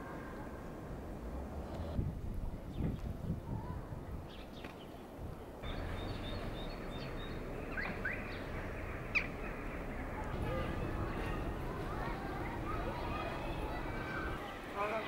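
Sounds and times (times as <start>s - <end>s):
city background hum: 0.0s - 15.0s
high bird chirps: 5.6s - 14.4s.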